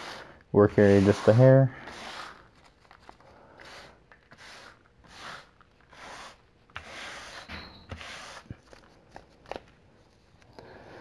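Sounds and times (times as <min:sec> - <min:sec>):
hand brushing wood chips: 0:00.0 - 0:03.0.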